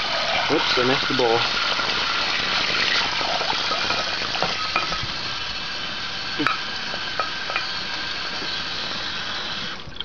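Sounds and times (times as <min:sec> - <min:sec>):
faucet water splashing in sink: 0:00.0 - 0:10.0
spoon scraping a pot: 0:02.8 - 0:05.1, 0:07.2 - 0:07.8.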